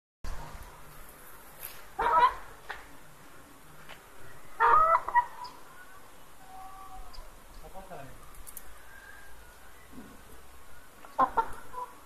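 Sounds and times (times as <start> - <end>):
hens clucking: 1.9 - 2.9, 4.6 - 5.7, 11.0 - 12.0
hens squawking: 2.0 - 2.5, 4.6 - 5.7, 11.1 - 12.0.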